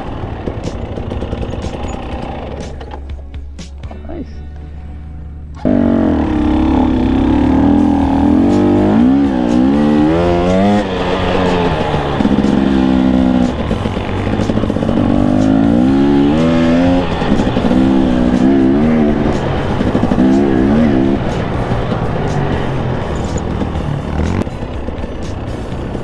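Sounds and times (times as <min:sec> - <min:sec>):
dirt bike engine revving: 0:00.0 - 0:03.2, 0:05.2 - 0:26.0
tyre noise: 0:05.5 - 0:26.0.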